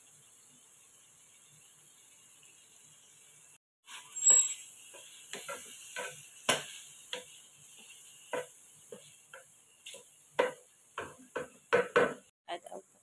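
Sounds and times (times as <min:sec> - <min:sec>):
faint sizzle: 0:00.0 - 0:13.0
wooden spatula scraping a pan: 0:03.8 - 0:12.3.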